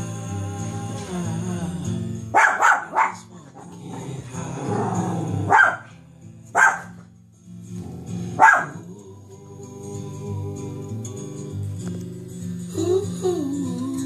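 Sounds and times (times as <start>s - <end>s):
song playing in background: 0.0s - 14.0s
dog barking: 2.3s - 3.3s, 5.4s - 5.9s, 6.5s - 7.1s, 8.4s - 8.9s.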